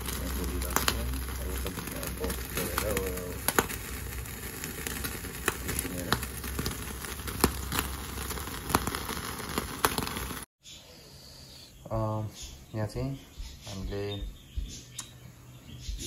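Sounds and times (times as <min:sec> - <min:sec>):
fat crackling and popping: 0:00.0 - 0:10.5
low rumble of flame: 0:00.0 - 0:10.5
pork sizzling on a grill: 0:00.0 - 0:10.5.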